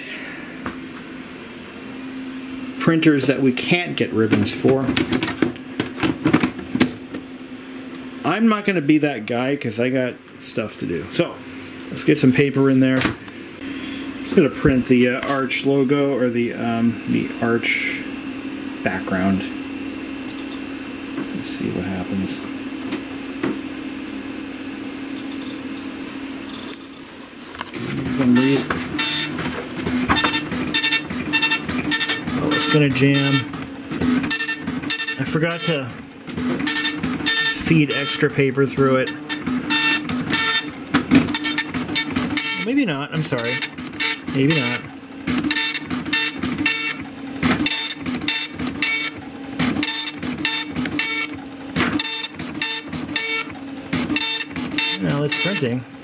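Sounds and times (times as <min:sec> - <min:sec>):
printer stepper motor whine: 0:00.0 - 0:56.0
printer mechanism rasping: 0:27.6 - 0:55.8.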